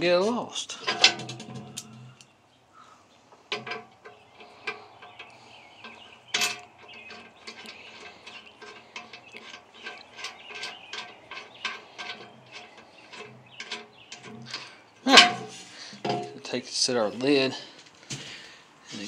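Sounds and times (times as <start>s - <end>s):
bolt clicking and scraping on metal: 0.8s - 2.3s, 3.5s - 16.5s.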